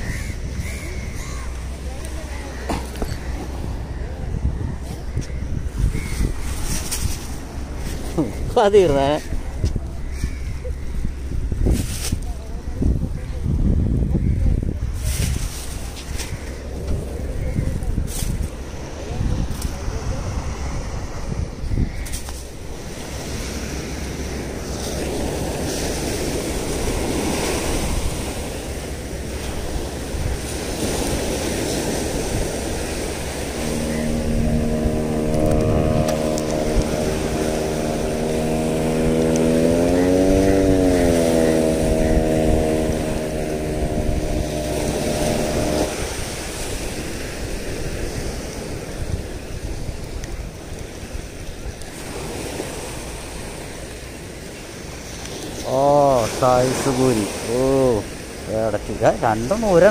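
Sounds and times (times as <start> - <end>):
low droning hum: 0.0 - 11.7, 14.6 - 47.9
waves washing onto beach: 0.0 - 59.9
wind on microphone: 0.0 - 59.9.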